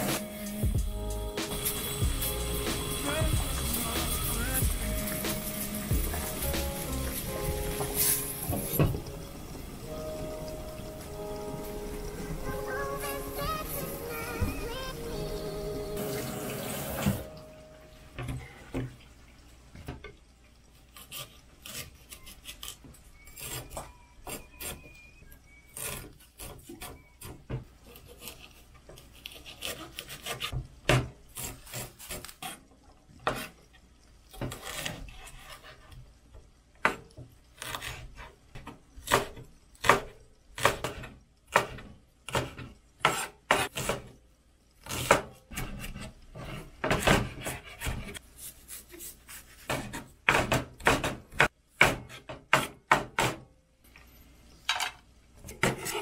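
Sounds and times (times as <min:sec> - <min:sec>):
knife chopping on wooden board: 0:49.6 - 0:53.4.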